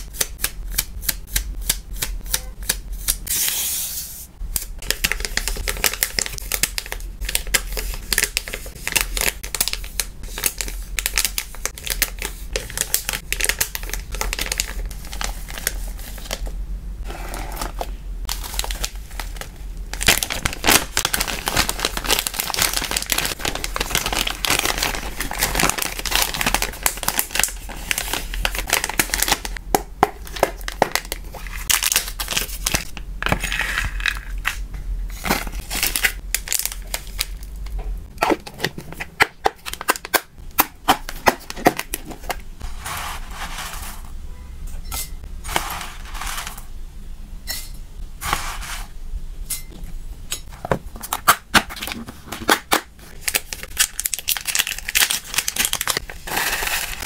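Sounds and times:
plastic packaging crinkling: 4.6 - 40.3, 50.5 - 57.0.

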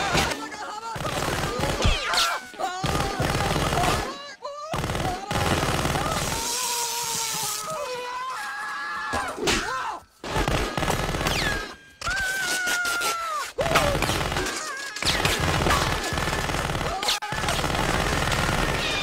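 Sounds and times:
automatic gunfire: 4.8 - 6.3, 13.8 - 19.0.

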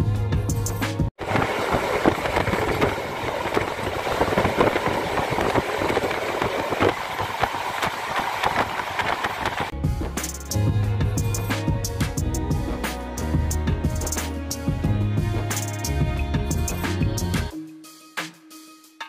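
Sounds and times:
train wheels rumbling on rail: 1.2 - 9.7.

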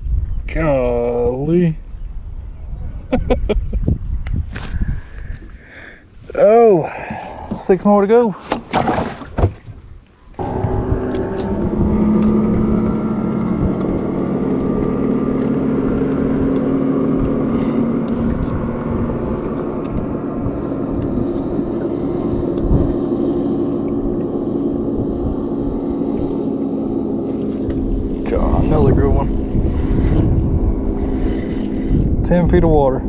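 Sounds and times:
motor humming: 10.4 - 32.6.

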